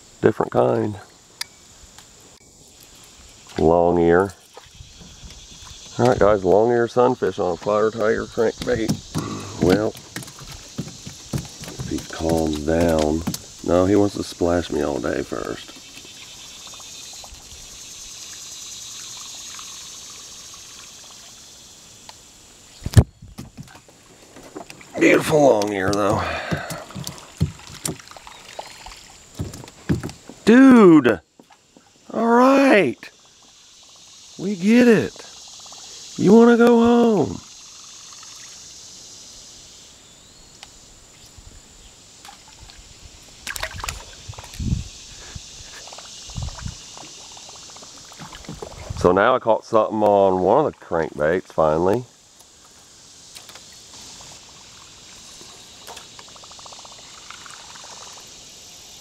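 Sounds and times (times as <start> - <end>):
insect chorus buzzing: 0.0 - 59.0
fish splashing in water: 8.6 - 14.1, 24.8 - 30.2, 43.4 - 44.6
low knock against canoe hull: 8.7 - 13.5, 25.8 - 28.0, 29.4 - 30.2.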